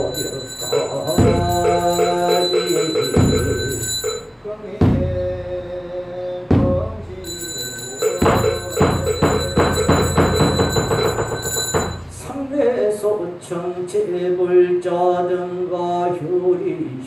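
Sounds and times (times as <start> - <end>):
metal bell ringing: 0.0 - 4.4, 7.2 - 12.3
percussion strikes quickening: 0.0 - 4.4, 7.3 - 12.4.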